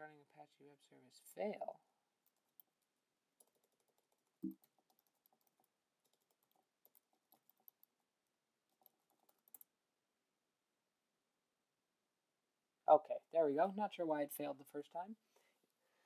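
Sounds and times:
computer keyboard typing: 0:02.2 - 0:08.0, 0:08.7 - 0:09.7.

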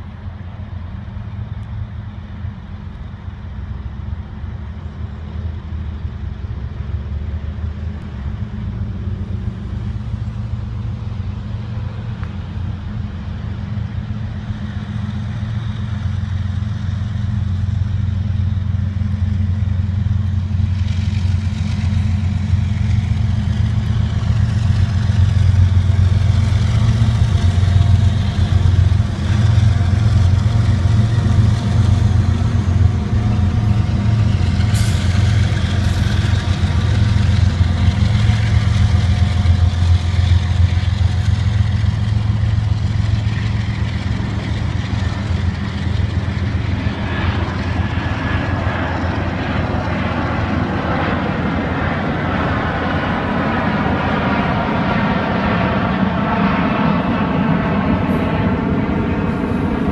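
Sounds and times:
diesel locomotive engines droning: 0:00.0 - 0:59.9
freight cars rolling: 0:06.7 - 0:51.8.

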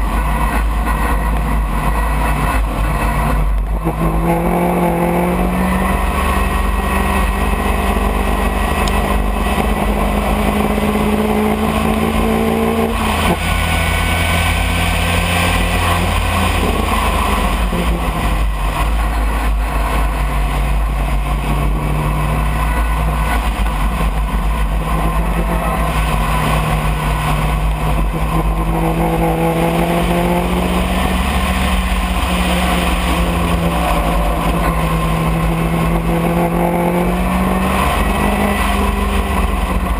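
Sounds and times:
race car engine revving: 0:00.0 - 0:39.9
wind and road noise: 0:00.0 - 0:39.9.

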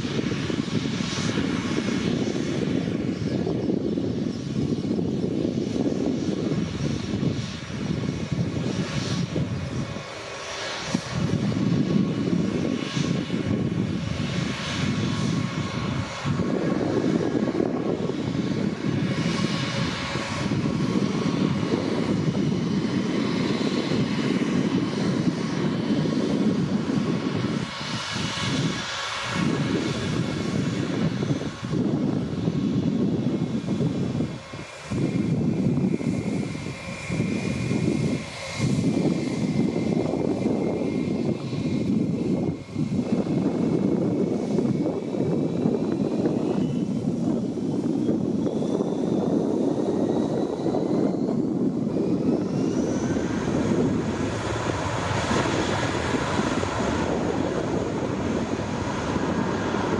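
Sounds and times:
faint high engine whine: 0:00.0 - 0:59.9
jet engines low rumble: 0:00.0 - 0:59.9.

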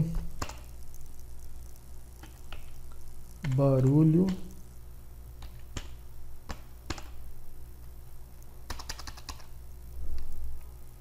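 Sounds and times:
keyboard typing: 0:00.4 - 0:00.7, 0:03.4 - 0:04.5, 0:05.4 - 0:07.2, 0:08.7 - 0:09.5.

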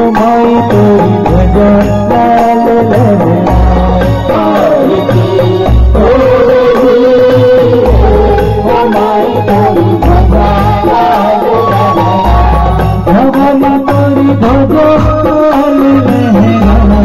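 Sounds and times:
dholak drum rhythm: 0:00.0 - 0:17.0
electronic keyboard melody: 0:00.0 - 0:17.0
deep bass beat: 0:03.0 - 0:08.9, 0:09.6 - 0:11.0, 0:11.8 - 0:17.0.

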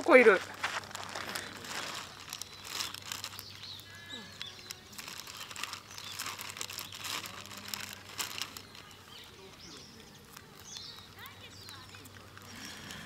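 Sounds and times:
rabbit crunching pepper: 0:00.6 - 0:13.0.

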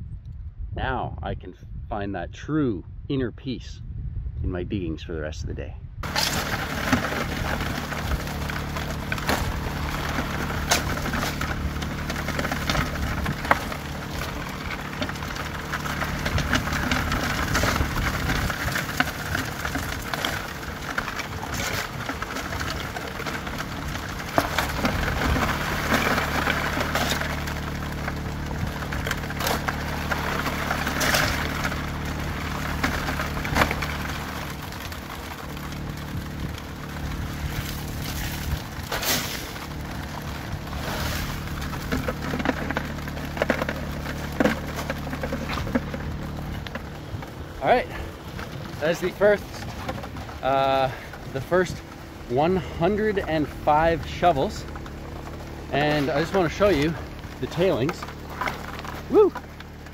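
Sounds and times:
water rushing through sluice: 0:06.0 - 0:52.2
clatter of shovelled gravel: 0:06.0 - 0:59.9
gasoline water pump running: 0:06.0 - 0:59.9.

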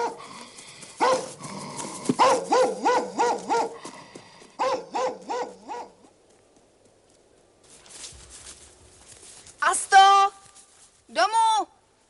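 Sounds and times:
dog barking: 0:00.0 - 0:00.2, 0:01.0 - 0:01.4, 0:02.2 - 0:03.8, 0:04.6 - 0:06.0.

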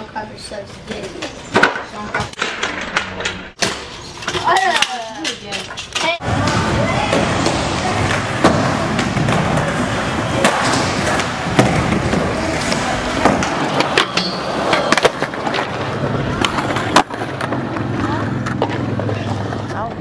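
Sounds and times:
skateboard wheels rolling on concrete: 0:06.2 - 0:20.0
skateboard tail clacking: 0:06.3 - 0:20.0.

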